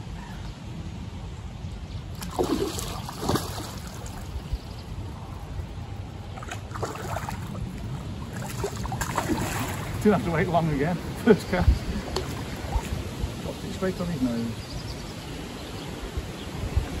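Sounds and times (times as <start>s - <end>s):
fish splashing and thrashing: 2.2s - 4.4s, 6.3s - 10.0s.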